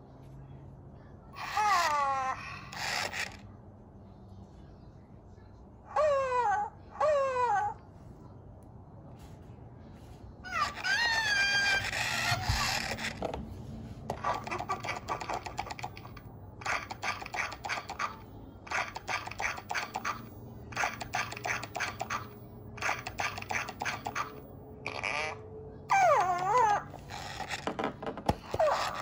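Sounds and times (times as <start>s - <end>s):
toy owl warbling cry: 1.4s - 3.4s, 5.9s - 7.8s, 10.5s - 13.2s, 14.1s - 29.0s
toy owl clicky chattering: 14.1s - 25.3s.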